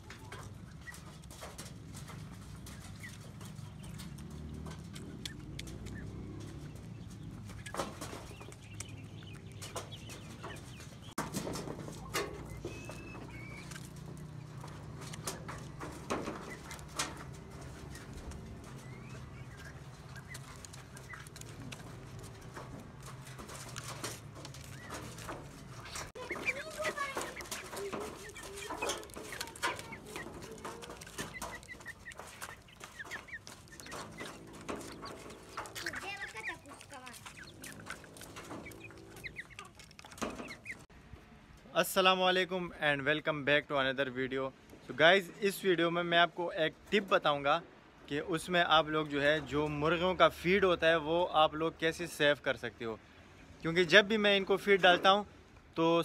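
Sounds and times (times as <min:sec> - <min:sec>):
beaks pecking at feeder: 0:00.0 - 0:40.9
chickens clucking softly: 0:00.0 - 0:40.9.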